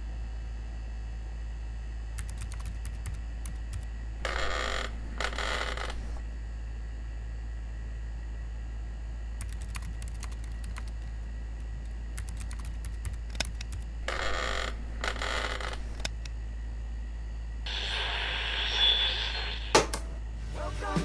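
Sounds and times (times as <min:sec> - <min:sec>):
low hum: 0:00.0 - 0:21.0
keyboard typing clicks: 0:02.2 - 0:03.9, 0:09.4 - 0:11.1, 0:11.8 - 0:13.9.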